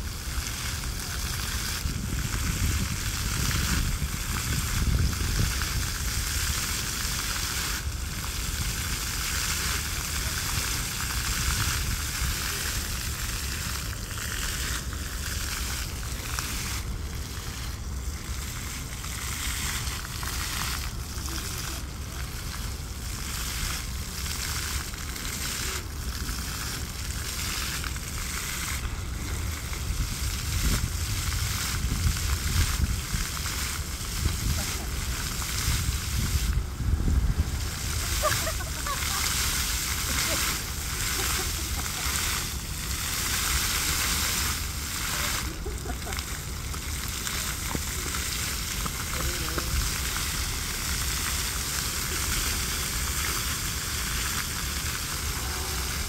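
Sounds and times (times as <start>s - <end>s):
fountain water splashing: 0.0s - 56.0s
low rumble: 54.7s - 56.0s.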